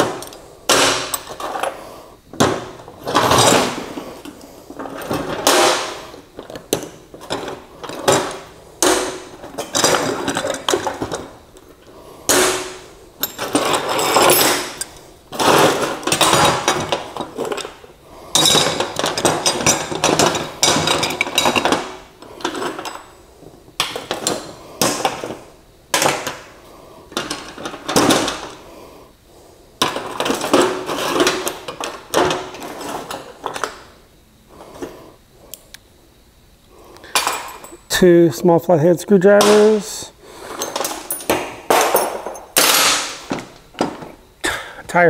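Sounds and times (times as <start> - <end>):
metal hand tools clattering: 13.2 - 23.0.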